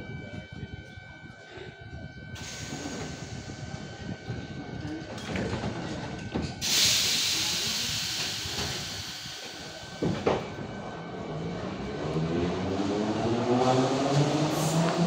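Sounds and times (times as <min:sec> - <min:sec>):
compressed air hissing: 0:06.6 - 0:09.9.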